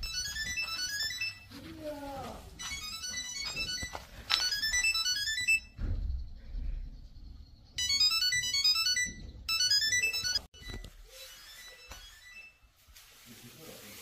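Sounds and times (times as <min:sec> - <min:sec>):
bright electronic ringtone melody: 0:00.0 - 0:01.6, 0:02.5 - 0:05.8, 0:07.8 - 0:12.6.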